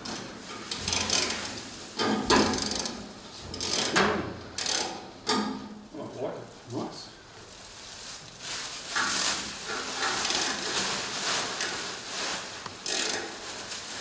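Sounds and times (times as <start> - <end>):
plastic wrap crinkling: 6.4 - 14.0.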